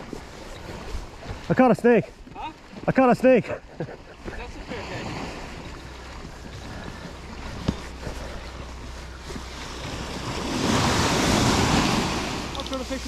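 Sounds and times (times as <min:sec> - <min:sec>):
sea water washing against pier: 0:00.0 - 0:13.0
wind rumbling on microphone: 0:04.2 - 0:13.0
wave rushing: 0:04.4 - 0:13.0.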